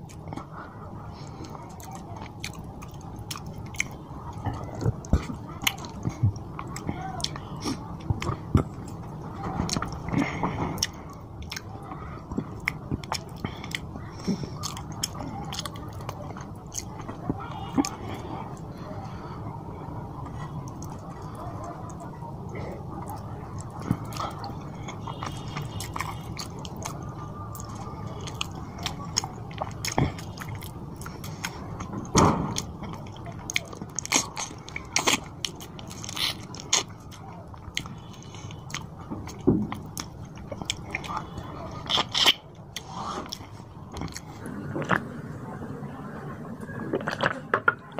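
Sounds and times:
man chewing and crunching: 0.0s - 45.4s, 46.8s - 47.9s
wet mouth clicks: 32.6s - 45.0s.

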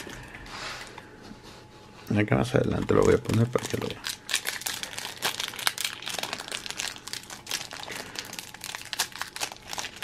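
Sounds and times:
foil wrapper crinkling: 0.0s - 0.4s, 2.6s - 10.0s.

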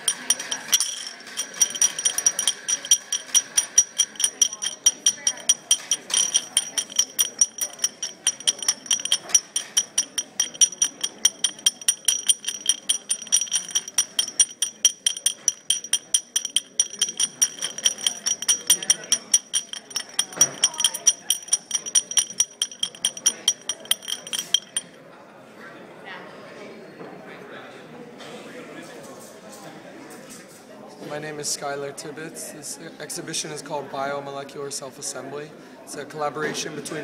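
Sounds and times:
glass ringing: 0.0s - 25.0s
parts clinking in glass flask: 0.0s - 25.0s.

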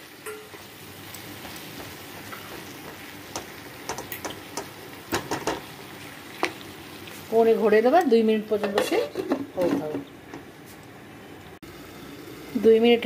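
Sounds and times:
vegetables sizzling in a pan: 0.0s - 13.0s
spatula scraping and tapping pan: 1.3s - 5.7s, 8.6s - 10.5s.

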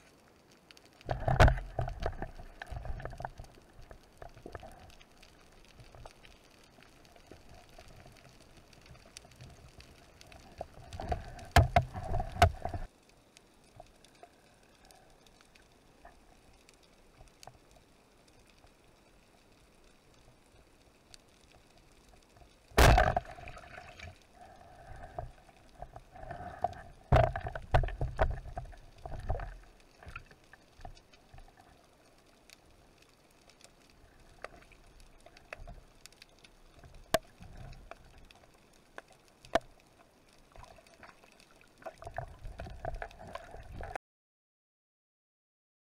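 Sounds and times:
underwater water noise and handling: 0.0s - 44.0s
underwater bumps: 1.1s - 3.6s, 10.6s - 12.9s, 22.7s - 24.2s, 24.8s - 30.3s
speargun firing underwater: 22.8s - 23.4s.

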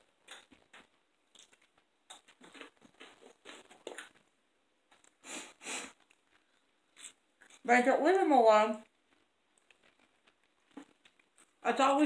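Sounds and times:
chewing crunchy chips: 0.0s - 4.3s, 6.0s - 7.7s, 8.8s - 11.6s.

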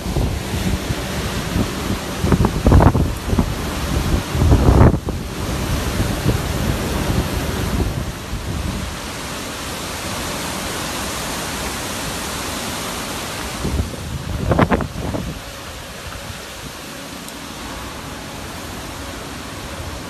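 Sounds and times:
wind buffeting microphone: 0.0s - 12.2s, 13.1s - 16.8s
strong wind rushing through trees: 0.0s - 20.0s.

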